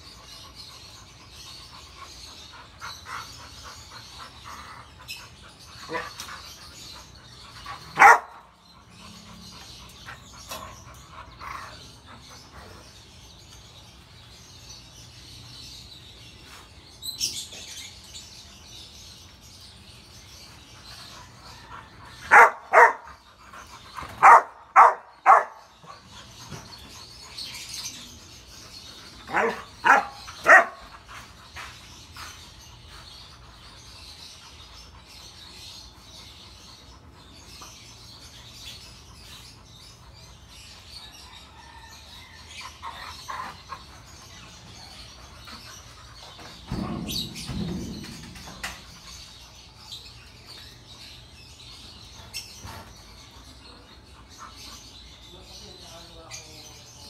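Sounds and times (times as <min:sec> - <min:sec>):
dogs barking: 0:01.8 - 0:06.4, 0:07.0 - 0:12.2, 0:21.3 - 0:26.9, 0:29.2 - 0:31.7.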